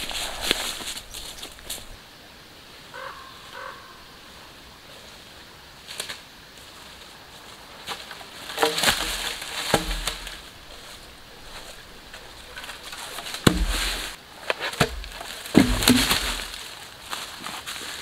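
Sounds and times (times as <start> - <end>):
wooden poles thudding on leaves: 0.0 - 1.9, 7.8 - 18.0
footsteps crunching through leaves: 0.0 - 2.0, 5.9 - 18.0.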